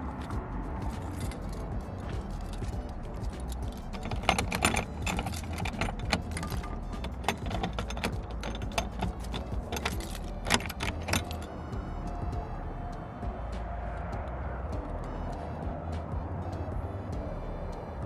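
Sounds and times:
keys jangling: 0.2s - 11.5s
padlock metal clicks: 0.9s - 11.5s.

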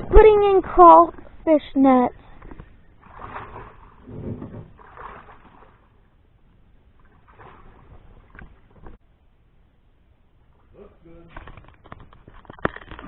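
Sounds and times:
swamp water splashing from wading: 2.3s - 9.0s.

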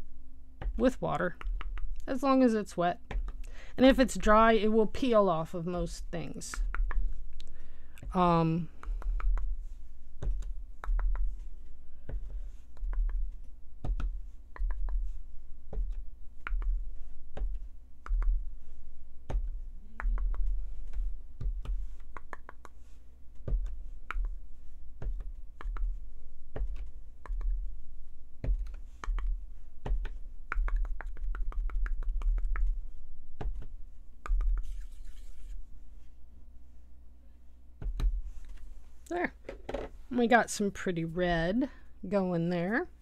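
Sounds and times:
cardboard tube tapping: 8.8s - 15.1s.

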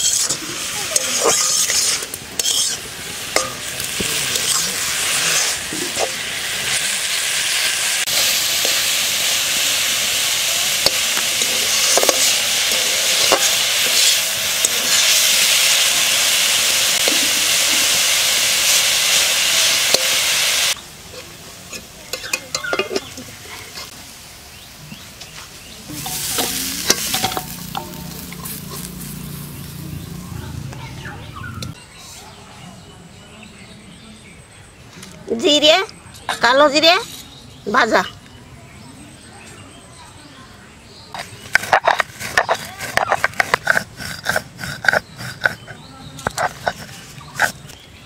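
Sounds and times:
metal spatula scraping pan: 0.0s - 6.2s, 10.8s - 16.1s, 25.9s - 29.4s
vegetables sizzling in pan: 0.0s - 31.7s.

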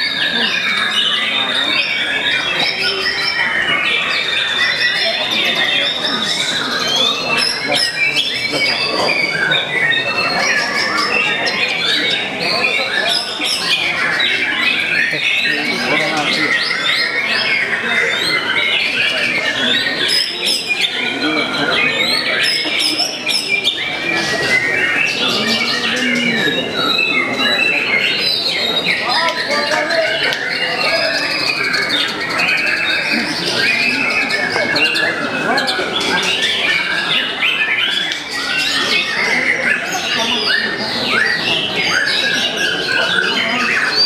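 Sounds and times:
birds singing whistles and chatter: 0.0s - 44.0s.

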